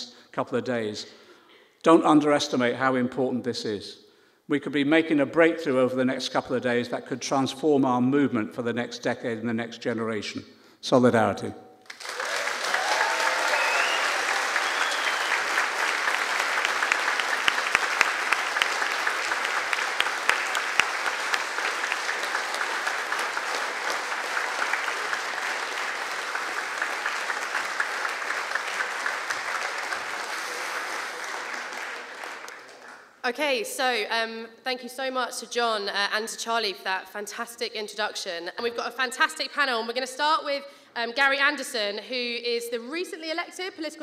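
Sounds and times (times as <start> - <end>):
audience applauding: 11.9 - 33.2.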